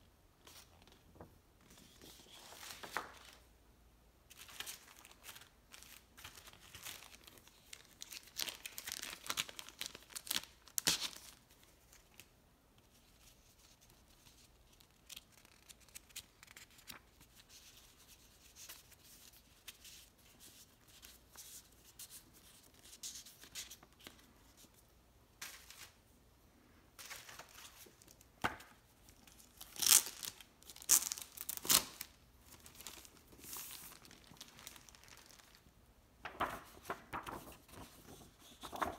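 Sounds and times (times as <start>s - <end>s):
plastic packaging crinkling: 4.4s - 11.4s, 29.2s - 35.7s
paper bills rustling: 36.2s - 38.9s.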